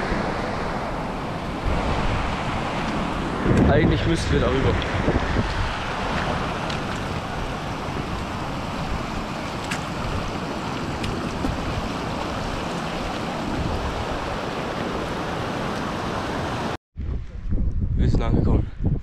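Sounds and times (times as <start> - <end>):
wind buffeting microphone: 0.0 - 15.6, 17.0 - 19.0
heavy rain falling: 5.7 - 16.8.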